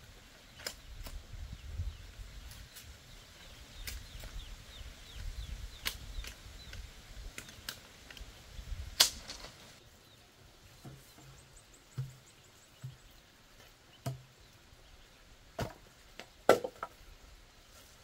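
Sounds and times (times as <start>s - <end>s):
ducklings peeping: 1.5s - 7.6s.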